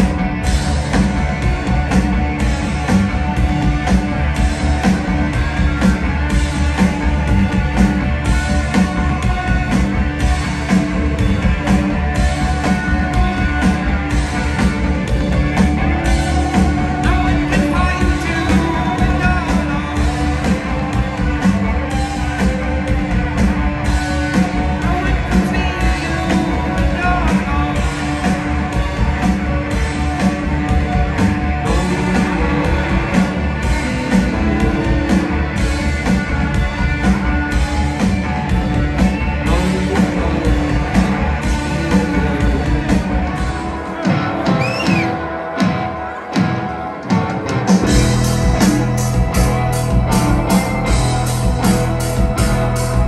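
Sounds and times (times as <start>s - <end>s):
bass and drums: 0.0s - 53.0s
electric guitars: 0.0s - 53.0s
person singing: 16.1s - 23.1s, 24.2s - 29.2s, 29.9s - 35.5s, 39.4s - 49.0s.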